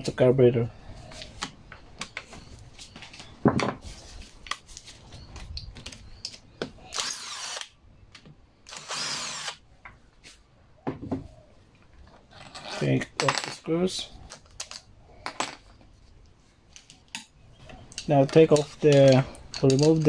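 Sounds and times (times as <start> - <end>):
cordless drill running: 6.9 - 7.7, 8.7 - 9.6
tool handling clicks: 16.8 - 20.0.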